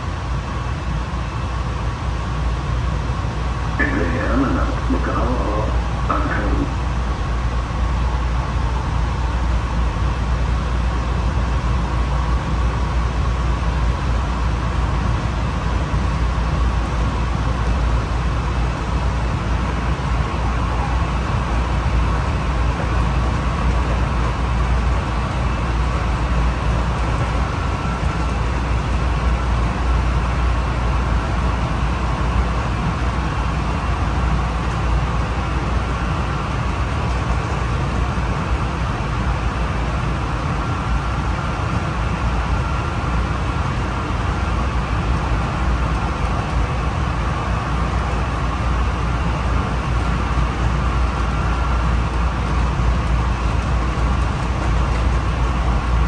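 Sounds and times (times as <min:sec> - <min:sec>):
steel wheels rumbling on rail: 0:00.0 - 0:56.0
faint high whine: 0:03.7 - 0:09.5.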